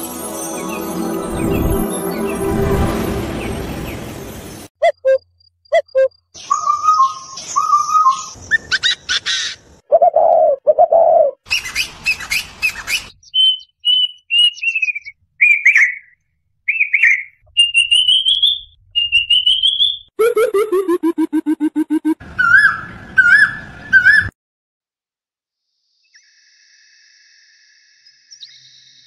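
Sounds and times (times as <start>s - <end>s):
deep repeated bird hooting: 4.8s - 11.4s
cuckoo calls: 4.8s - 24.3s.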